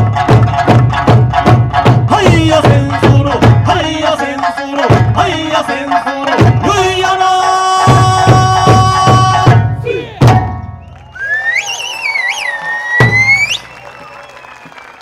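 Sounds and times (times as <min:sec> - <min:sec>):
barrel drums and hand drums: 0:00.0 - 0:10.9, 0:12.9 - 0:13.6
wavering high whistle: 0:10.8 - 0:15.0.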